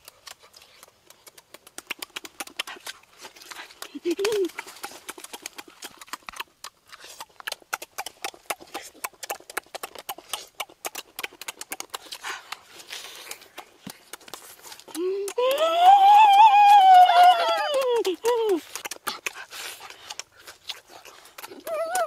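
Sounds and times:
wet chewing and lip smacking: 0.0s - 22.0s
person crying out high-pitched: 15.0s - 18.6s, 21.6s - 22.0s.

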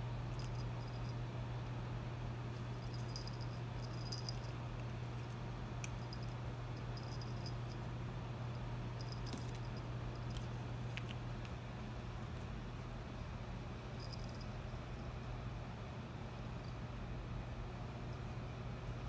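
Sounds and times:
collar bell jingling: 0.3s - 1.2s, 2.7s - 4.6s, 5.9s - 7.8s, 9.0s - 10.4s, 14.0s - 14.6s
low hum: 2.5s - 4.6s.

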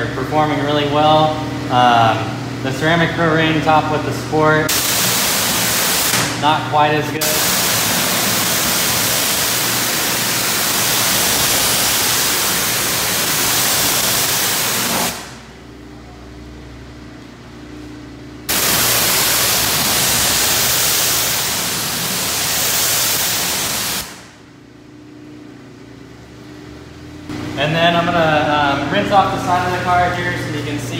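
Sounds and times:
pressure washer spraying water: 4.7s - 6.4s, 7.2s - 15.4s, 18.5s - 24.3s.

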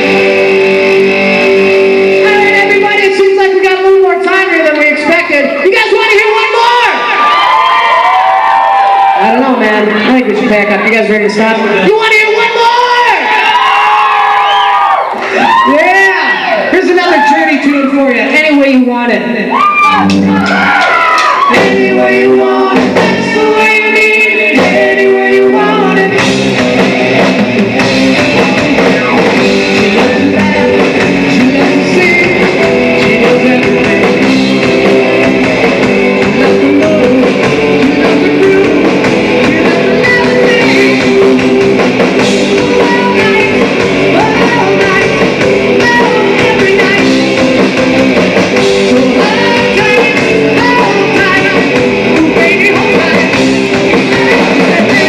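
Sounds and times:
person singing: 0.0s - 4.7s, 21.4s - 55.0s
drum kit: 0.0s - 10.0s, 11.3s - 17.4s, 19.2s - 55.0s
electric guitar: 0.0s - 55.0s.

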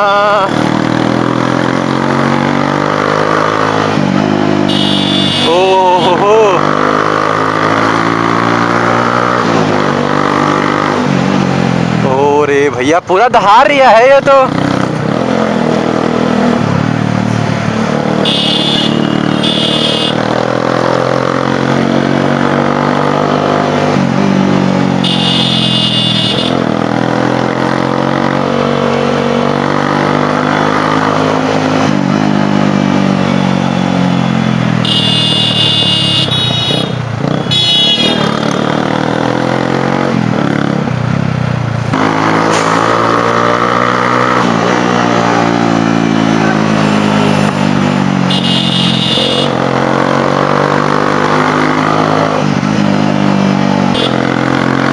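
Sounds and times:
motorcycle engine accelerating: 14.3s - 54.9s.

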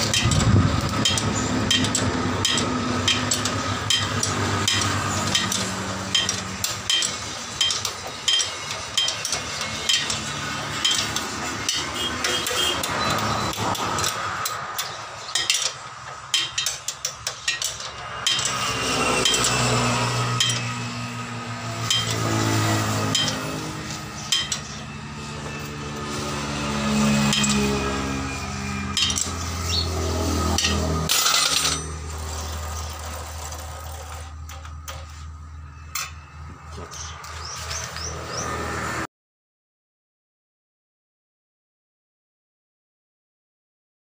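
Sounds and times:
spanner clinking on metal: 0.0s - 25.7s, 27.0s - 35.2s.

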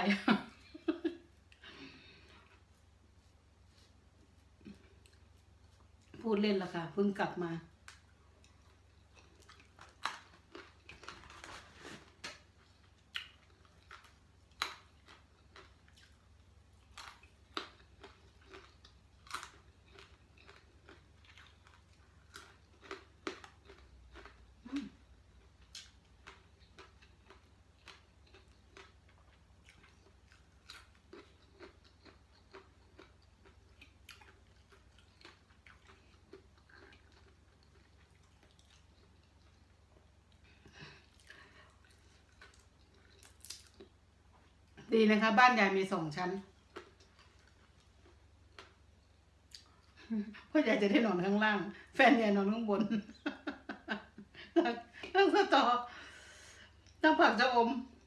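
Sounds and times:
person chewing crunchy food: 7.8s - 44.8s, 46.5s - 50.0s.

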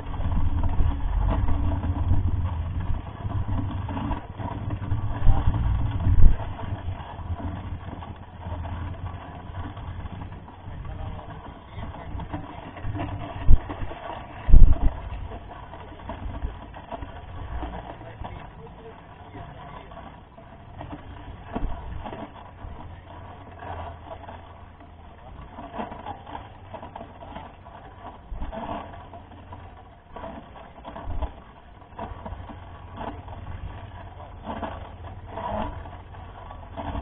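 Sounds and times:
bike knocking on bumps: 0.0s - 19.0s
bike rattling over gravel: 0.0s - 37.0s
wind rumble on microphone: 0.0s - 37.0s.

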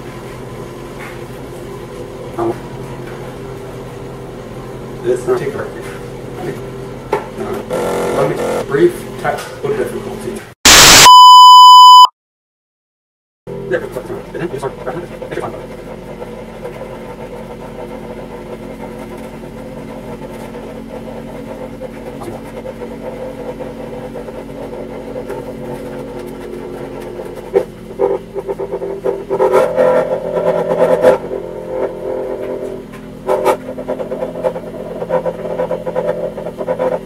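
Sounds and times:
cotton candy machine humming: 0.0s - 8.9s.

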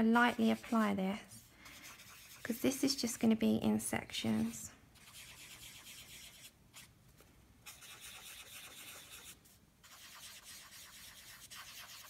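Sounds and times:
pad rubbing pastel on paper: 0.1s - 1.0s, 1.7s - 2.6s, 4.4s - 6.9s, 7.6s - 12.0s.

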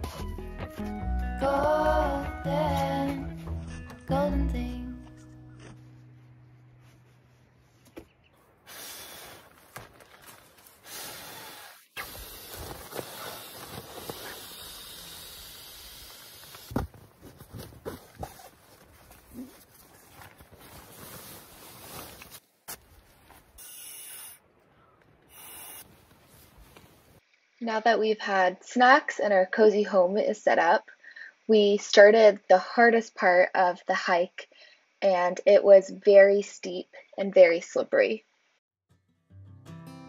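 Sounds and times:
nylon camping gear rustling: 8.7s - 23.6s, 25.3s - 27.2s.

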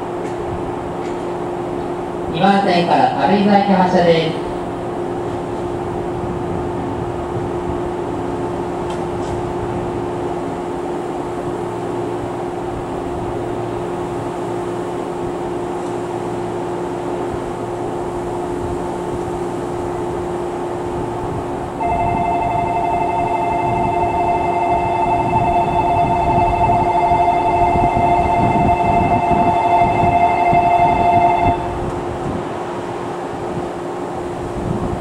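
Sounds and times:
electric train humming: 0.0s - 35.0s
multi-tone chime: 21.8s - 31.7s.

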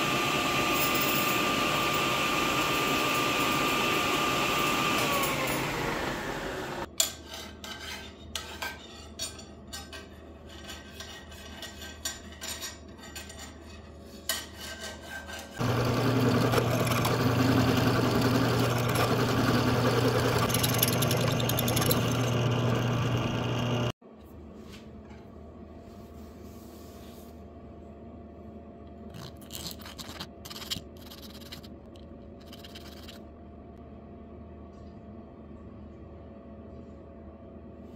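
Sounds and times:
drill press humming: 1.4s - 6.9s, 15.6s - 24.0s
table saw blade whining down: 15.6s - 23.9s.

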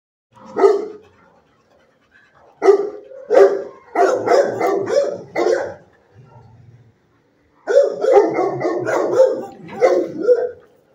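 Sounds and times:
dog barking: 0.4s - 1.1s, 2.4s - 6.6s, 7.6s - 10.7s.

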